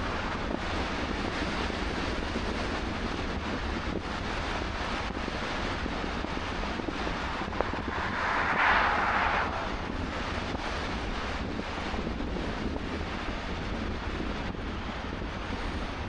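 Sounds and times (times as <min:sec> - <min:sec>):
car road and wind noise: 0:00.0 - 0:16.0
oncoming car passing: 0:06.1 - 0:11.0
low rumble: 0:06.3 - 0:11.0.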